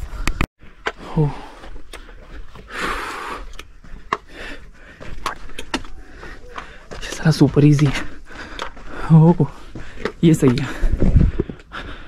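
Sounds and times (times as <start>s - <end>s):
person exhaling: 1.0s - 1.7s
footsteps scuffing on rocks: 3.4s - 11.7s.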